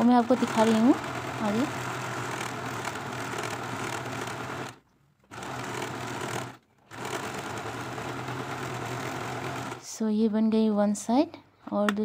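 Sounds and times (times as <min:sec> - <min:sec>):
sewing machine running: 0:00.0 - 0:09.9.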